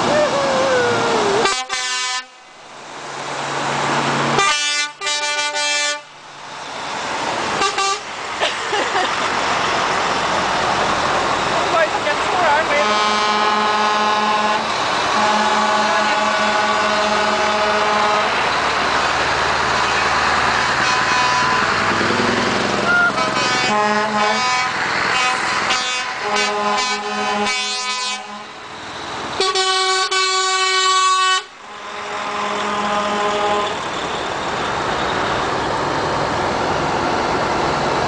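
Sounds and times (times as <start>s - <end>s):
diesel engines of passing lorries: 0.0s - 38.0s
truck air horns: 1.4s - 2.5s, 4.4s - 6.1s, 7.6s - 8.1s, 12.5s - 18.5s, 19.7s - 22.2s, 22.8s - 28.6s, 29.4s - 33.9s.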